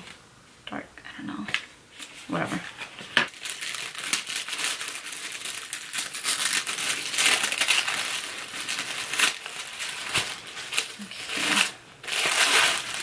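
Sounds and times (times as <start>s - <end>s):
packaging crinkling: 3.3s - 13.0s.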